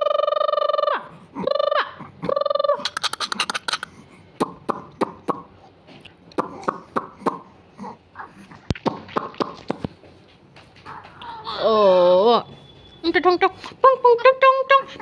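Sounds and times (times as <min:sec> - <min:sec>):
infant fussing: 0:00.7 - 0:05.8, 0:06.4 - 0:08.8
infant crying: 0:10.9 - 0:11.9.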